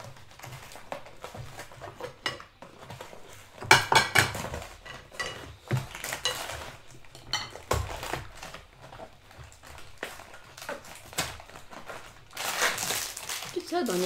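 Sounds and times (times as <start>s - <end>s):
cutlery clinking on ceramic plates: 1.9s - 8.2s.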